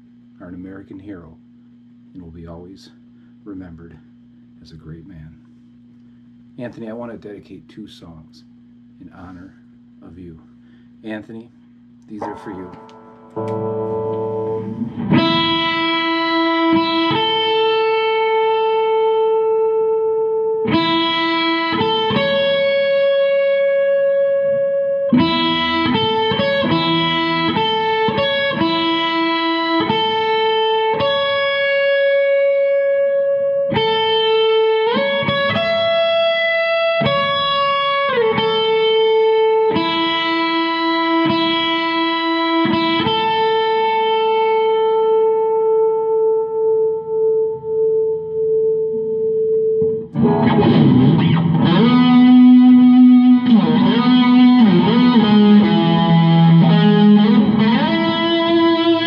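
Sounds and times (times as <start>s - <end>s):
electric guitar slow melody: 12.0s - 59.0s.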